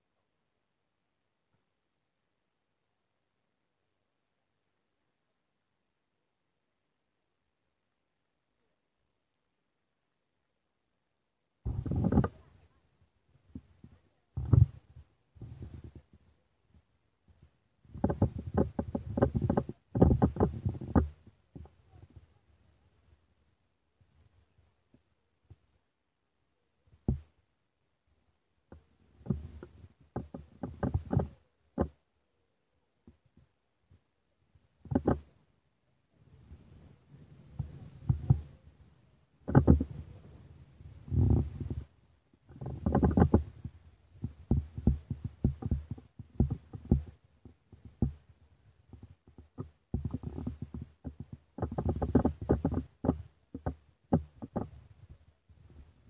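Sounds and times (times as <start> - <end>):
dull thumps on microphone: 11.7 - 12.5, 14.4 - 14.8, 27.0 - 27.3, 39.5 - 40.0, 42.5 - 48.3
short knocks and thumps: 11.7 - 12.5, 13.5 - 16.1, 17.4 - 22.2, 27.0 - 27.4, 28.7 - 32.0, 34.8 - 35.3, 37.6 - 38.6, 39.4 - 40.1, 41.0 - 48.3, 48.9 - 55.2.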